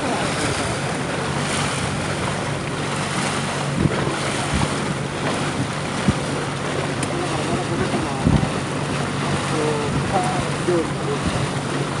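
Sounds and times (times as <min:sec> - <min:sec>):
wind rushing over microphone: 0:00.0 - 0:06.4, 0:07.3 - 0:08.9
boat engine hum: 0:00.0 - 0:12.0.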